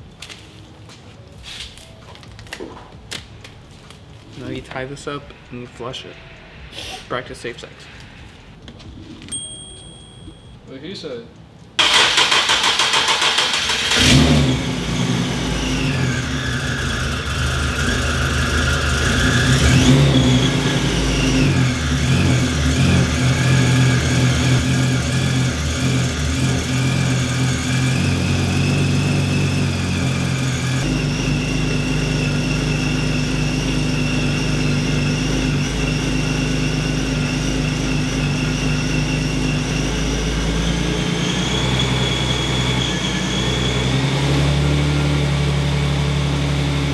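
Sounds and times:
car engine idling: 11.8s - 41.4s.

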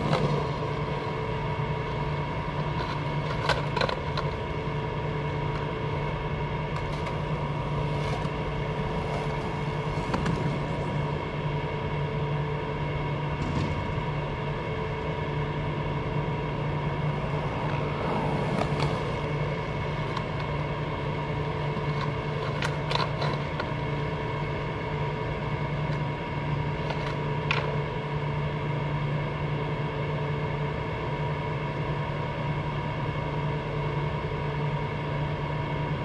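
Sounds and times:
skateboard rolling on concrete: 0.0s - 36.0s
steady mechanical hum: 0.0s - 36.0s
skateboard clacking on box: 2.6s - 4.4s, 21.8s - 23.8s.

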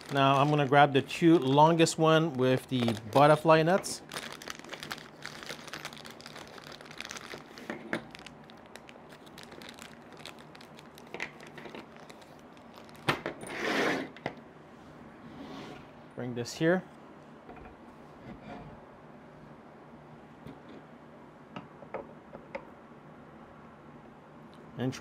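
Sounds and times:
plastic bag crinkling: 0.0s - 13.2s.

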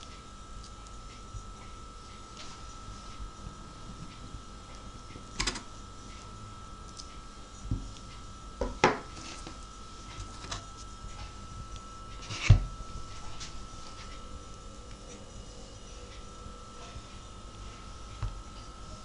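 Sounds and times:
faint high whine: 0.0s - 19.0s
knocks on wooden cutting board: 8.6s - 9.0s.

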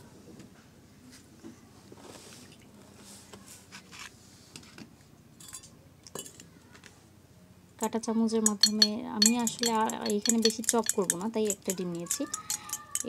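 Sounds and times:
utensils clinking against dishes: 5.4s - 6.4s, 8.4s - 13.0s.

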